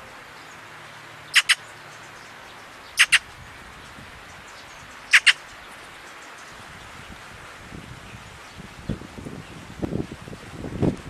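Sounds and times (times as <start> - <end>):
magpie calling: 1.3 - 1.7, 2.9 - 3.3, 5.1 - 5.4.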